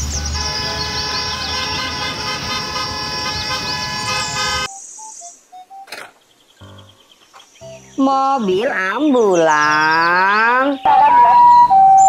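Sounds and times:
school bus horns honking: 0.0s - 4.7s.

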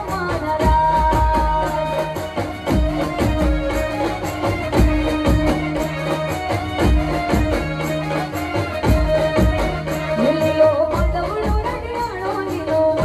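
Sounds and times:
band playing over loudspeakers: 0.0s - 13.0s
drum strikes: 0.0s - 13.0s.

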